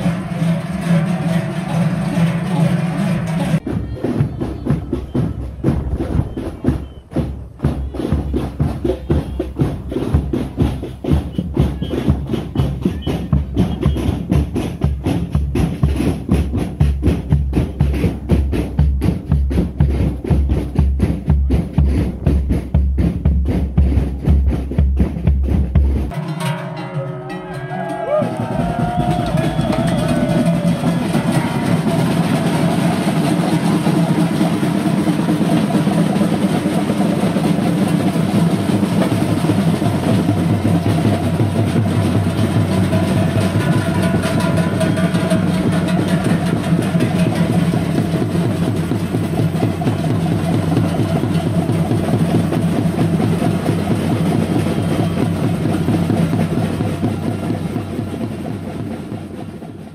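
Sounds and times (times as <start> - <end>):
large cowbells clanging: 26.1 - 36.4, 39.0 - 57.2.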